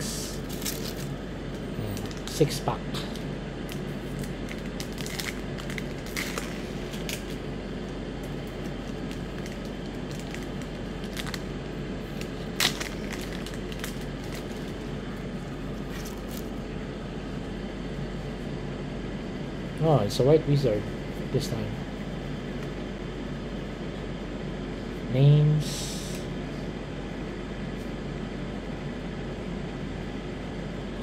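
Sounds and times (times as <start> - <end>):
low steady hum: 0.0 - 31.0
foil wrapper crinkling and tearing: 0.3 - 1.2, 3.6 - 7.4, 8.4 - 14.9, 15.8 - 16.5.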